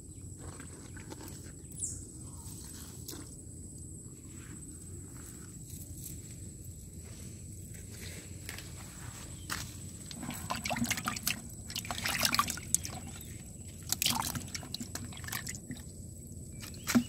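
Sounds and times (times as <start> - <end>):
water splashing in plastic basin: 10.1 - 15.9, 16.6 - 17.0.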